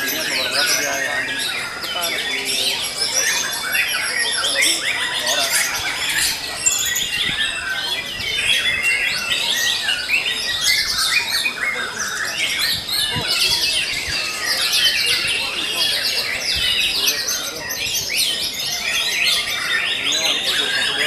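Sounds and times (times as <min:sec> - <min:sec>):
songbirds chirping and trilling: 0:00.0 - 0:21.0.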